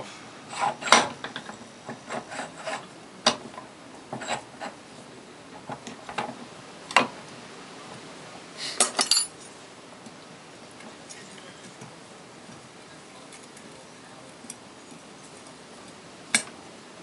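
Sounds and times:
light rubbing: 0.0 - 2.9.

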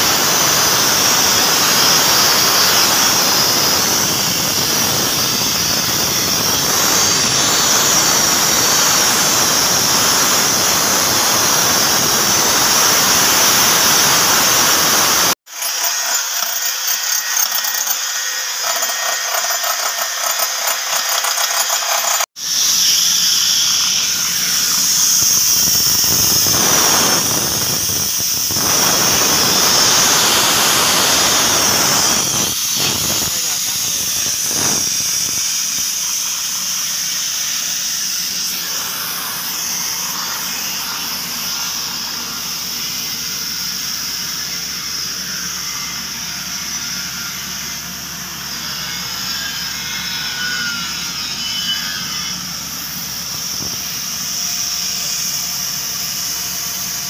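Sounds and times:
air compressor running: 0.0 - 49.8, 52.3 - 57.0
compressed air hissing from hose: 22.4 - 43.1.

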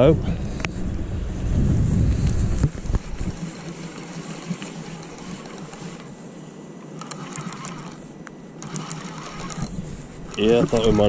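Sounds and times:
spinning reel clicking: 2.8 - 6.1, 7.0 - 8.0, 8.6 - 11.0.

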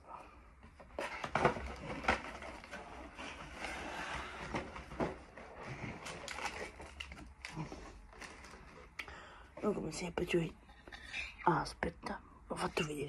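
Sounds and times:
trading cards and packaging crinkling: 1.0 - 9.0.

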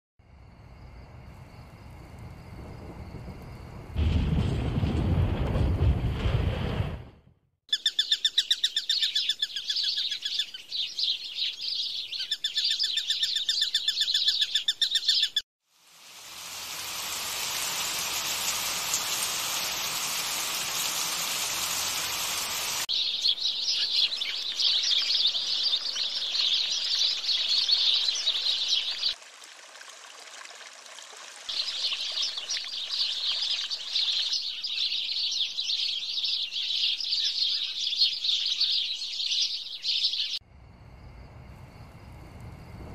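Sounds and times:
steady rushing hiss: 15.8 - 22.9
dense rapid bird chirping: 17.1 - 29.2, 31.5 - 40.4.

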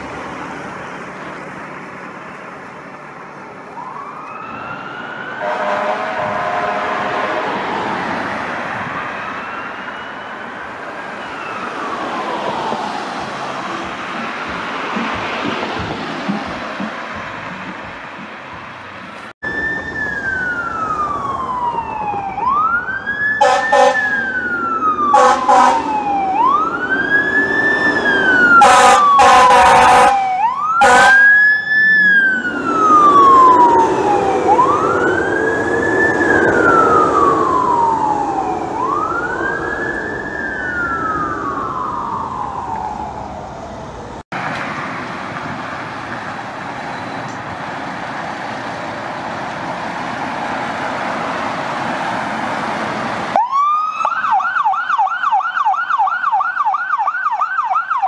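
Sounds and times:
truck engine: 0.0 - 53.4
street traffic noise: 0.0 - 58.0
fire truck siren wailing: 2.8 - 16.4, 19.4 - 44.6, 47.2 - 58.0
air horn blasts: 5.4 - 7.7, 23.4 - 24.2, 25.1 - 25.9, 28.6 - 30.2, 30.8 - 31.3.

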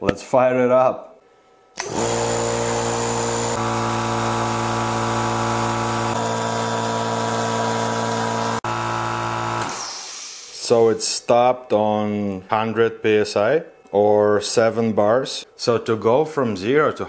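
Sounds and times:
air compressor running: 1.8 - 10.6.

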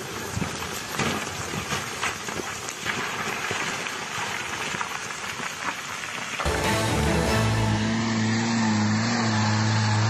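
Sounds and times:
rocks and gravel clattering down: 0.0 - 6.5.

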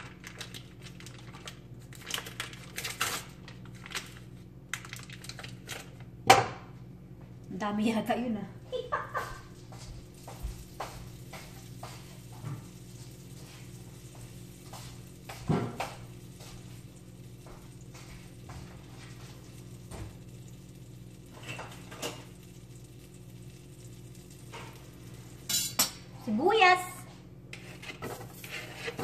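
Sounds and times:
butter sizzling: 9.2 - 26.7.

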